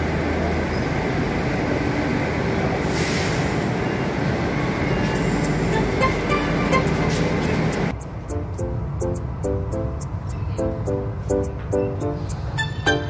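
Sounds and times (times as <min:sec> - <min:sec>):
train rumbling with electric hum: 0:00.0 - 0:13.0
brief hiss: 0:02.8 - 0:03.6.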